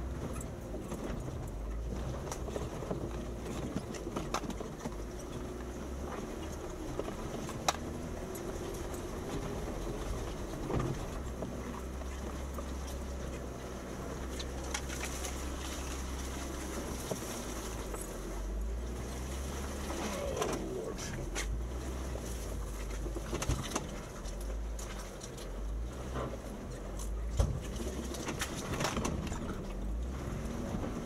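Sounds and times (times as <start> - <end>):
low engine rumble: 0.0 - 31.0.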